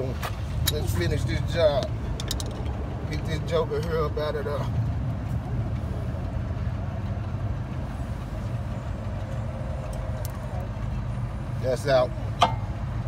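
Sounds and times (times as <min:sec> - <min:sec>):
low mechanical drone: 0:00.0 - 0:13.0.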